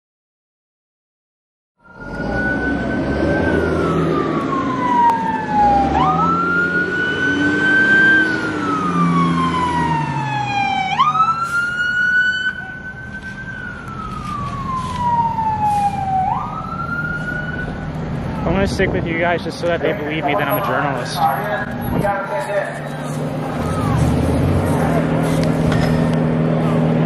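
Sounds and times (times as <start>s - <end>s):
second fainter siren: 1.8s - 17.8s
heavy vehicle engines rumbling: 1.8s - 27.0s
police siren wailing: 1.8s - 27.0s.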